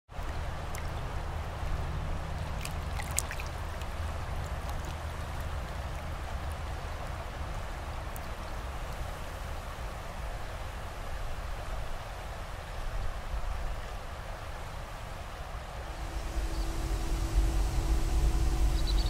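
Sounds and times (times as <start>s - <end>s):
river water flowing: 0.1s - 19.0s
low rumble: 15.8s - 19.0s.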